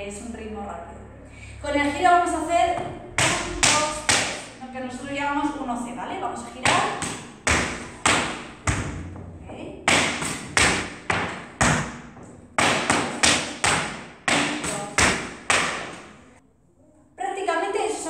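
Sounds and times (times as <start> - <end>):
tap shoes striking hard floor: 6.6 - 16.2.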